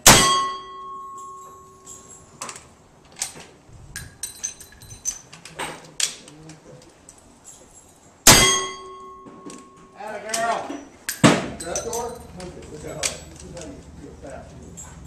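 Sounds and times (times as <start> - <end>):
steel target ringing: 0.0 - 2.4, 8.2 - 10.2
rifle shot: 8.3 - 8.8.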